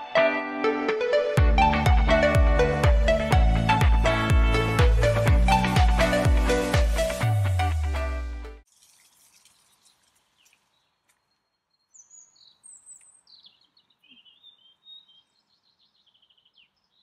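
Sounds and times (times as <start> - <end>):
music: 0.0 - 8.6
songbirds chirping and trilling: 9.6 - 17.0.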